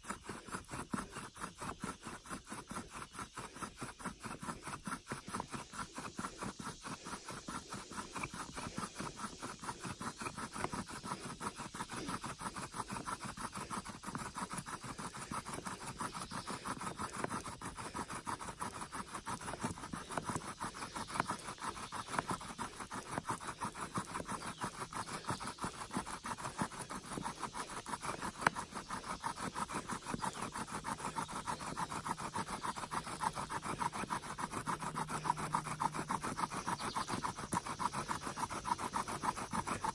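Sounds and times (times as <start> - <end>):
bow drill squeaking and grinding: 0.0 - 39.9.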